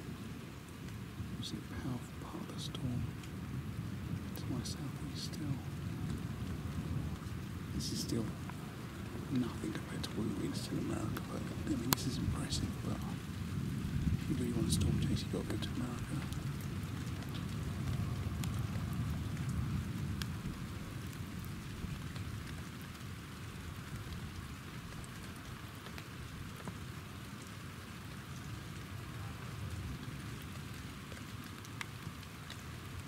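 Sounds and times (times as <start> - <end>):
raindrops ticking close by: 0.0 - 33.0
steady rain: 0.0 - 33.0
distant thunder rumble: 1.0 - 25.4.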